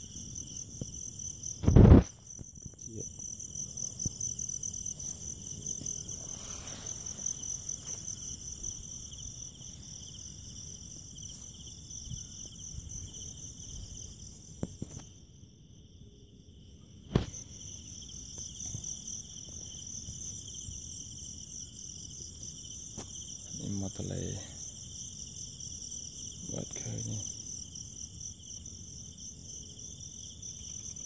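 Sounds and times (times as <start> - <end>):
high pulsing insect trill: 0.0 - 31.0
lower insect trill: 0.0 - 31.0
loud thump: 1.6 - 2.2.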